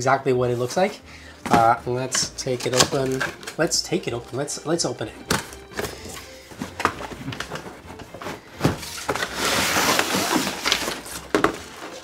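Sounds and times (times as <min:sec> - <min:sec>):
cardboard box being opened: 0:05.4 - 0:12.0
loud rustling scrape: 0:07.4 - 0:11.3.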